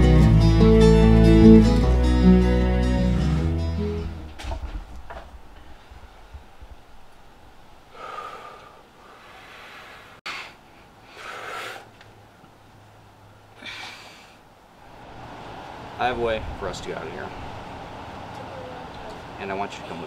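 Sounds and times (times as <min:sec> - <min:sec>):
man breathing hard: 0:07.9 - 0:11.9, 0:13.6 - 0:14.4.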